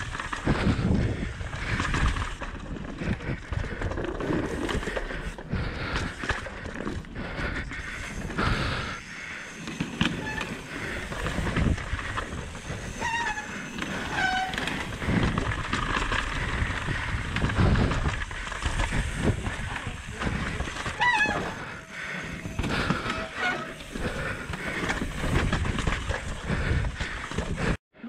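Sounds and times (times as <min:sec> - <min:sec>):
bike rattling and knocking: 0:00.0 - 0:27.8
bike tyres rumbling over rock: 0:00.0 - 0:27.8
short squeals: 0:12.6 - 0:14.9, 0:20.9 - 0:24.2.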